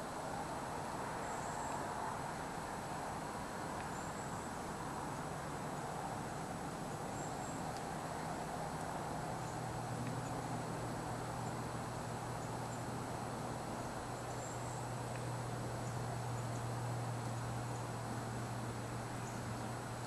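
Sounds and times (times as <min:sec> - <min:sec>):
steady hiss: 0:00.0 - 0:20.0.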